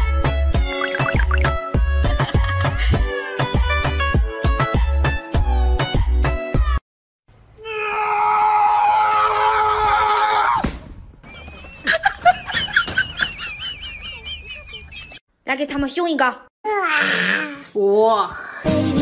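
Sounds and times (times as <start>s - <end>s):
person screaming: 7.6s - 10.6s.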